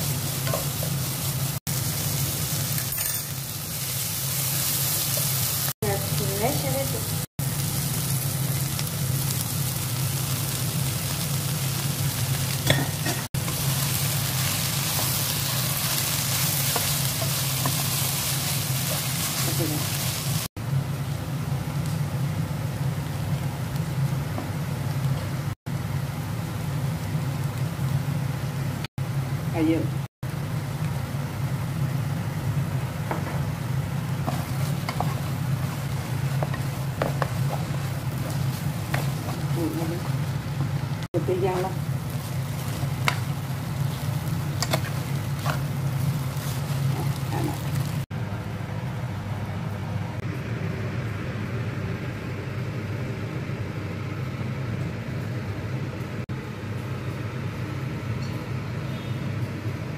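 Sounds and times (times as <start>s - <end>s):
food sizzling in a pan: 0.0s - 48.1s
low machine hum: 0.0s - 59.9s
spatula stirring and scraping: 34.2s - 40.8s, 41.5s - 47.6s.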